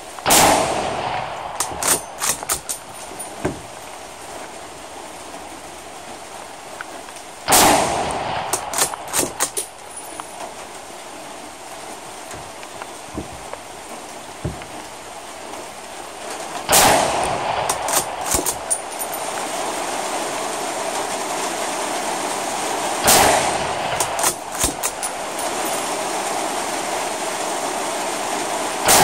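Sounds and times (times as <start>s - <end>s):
rifle shot echoing: 0.2s - 2.9s, 7.5s - 9.6s, 16.7s - 18.8s, 23.0s - 25.0s
rifle bolt clicks: 1.6s - 3.0s, 8.5s - 9.7s, 17.2s - 19.0s, 24.0s - 25.2s.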